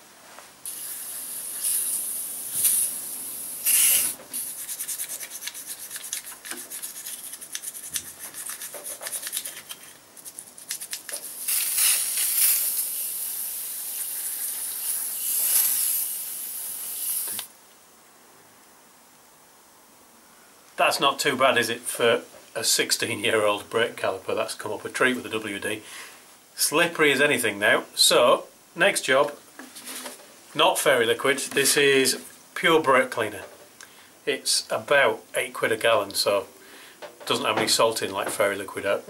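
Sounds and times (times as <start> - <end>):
aerosol spray hissing: 0.7 - 7.9, 11.2 - 17.5
rubbing strokes on metal: 0.7 - 10.9.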